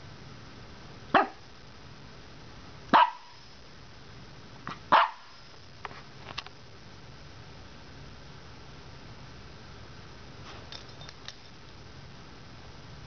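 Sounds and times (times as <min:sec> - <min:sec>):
puppy barking: 0:01.1 - 0:01.4, 0:02.9 - 0:03.4, 0:04.7 - 0:05.4
puppy yip: 0:01.2 - 0:01.4, 0:03.0 - 0:03.4, 0:04.9 - 0:05.3.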